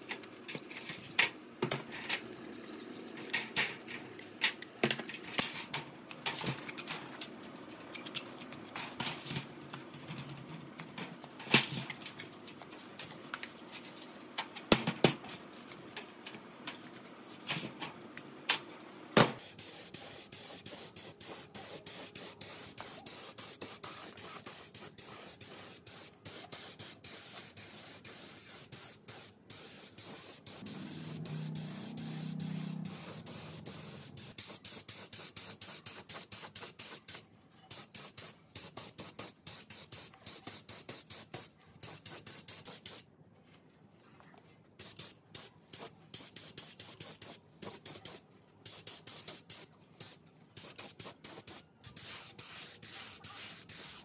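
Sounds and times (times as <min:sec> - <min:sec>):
paint spray gun hissing: 0:19.4 - 0:37.0.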